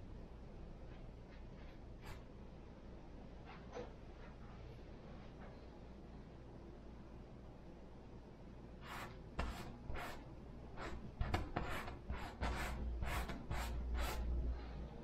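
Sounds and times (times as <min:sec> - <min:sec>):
paintbrush scratching on canvas: 0:08.8 - 0:10.2, 0:10.8 - 0:14.3.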